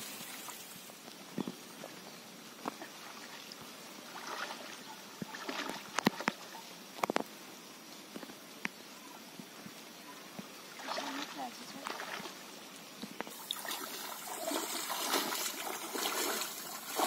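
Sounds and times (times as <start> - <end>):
water sloshing from wading: 2.7 - 6.6, 10.7 - 12.4, 13.3 - 17.0.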